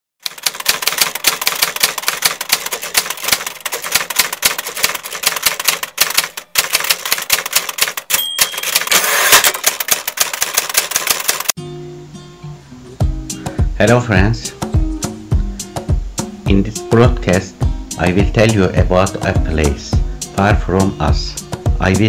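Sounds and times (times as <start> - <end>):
short high ding: 8.1 - 8.9.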